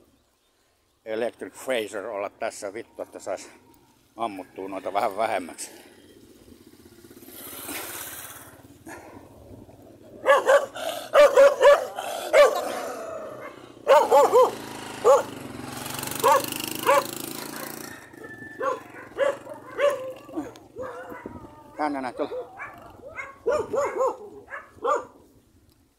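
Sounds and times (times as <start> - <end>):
dogs barking: 8.8 - 9.3, 10.1 - 15.5, 16.1 - 25.2.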